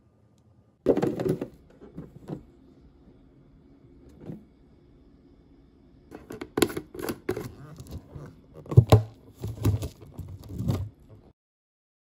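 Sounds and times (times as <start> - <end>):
plastic tub crinkling: 6.1 - 11.2.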